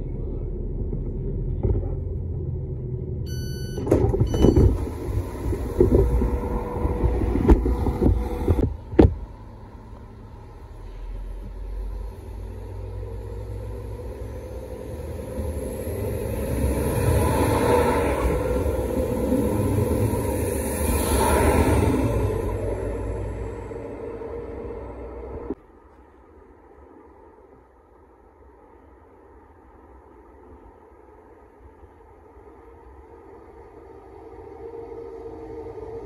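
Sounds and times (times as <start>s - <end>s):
railcar engine pulling away: 0.0s - 8.6s, 9.3s - 25.6s, 32.6s - 36.0s
door button beep: 3.3s - 4.8s
train door clunking open: 3.8s - 4.9s.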